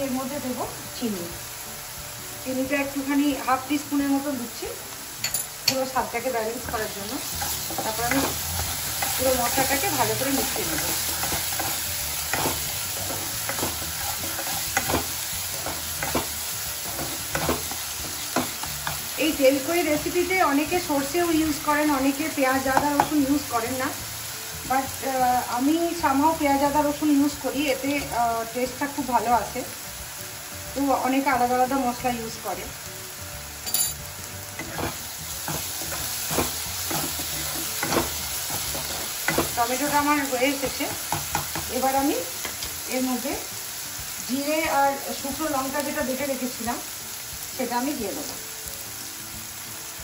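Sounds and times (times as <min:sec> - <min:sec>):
masala sizzling in oil: 0:00.0 - 0:50.0
spatula scraping the pan: 0:07.3 - 0:19.1, 0:34.6 - 0:39.6
sharp clink: 0:33.7 - 0:34.0.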